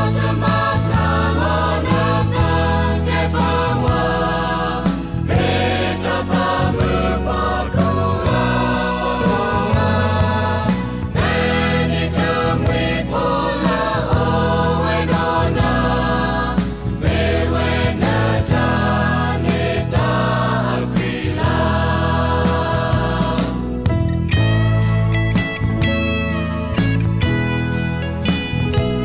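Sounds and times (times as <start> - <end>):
choir singing: 0.0 - 23.8
instrumental backing with steady beat: 0.0 - 29.0.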